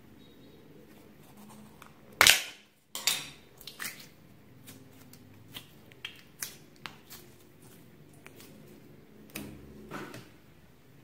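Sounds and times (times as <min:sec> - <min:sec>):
slime squelching: 0:03.0 - 0:09.6.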